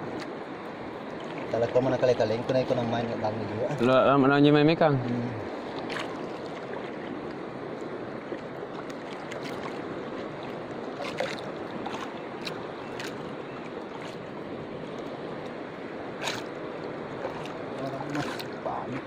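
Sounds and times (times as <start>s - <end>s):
water lapping against canoe hull: 0.0s - 4.0s, 4.8s - 19.0s
short splashes: 1.1s - 1.8s, 5.0s - 7.2s, 8.2s - 19.0s.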